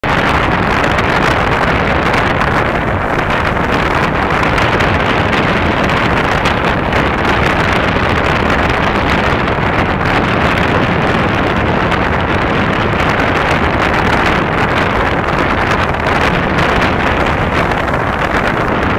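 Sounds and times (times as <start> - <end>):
wind buffeting microphone: 0.0 - 18.9.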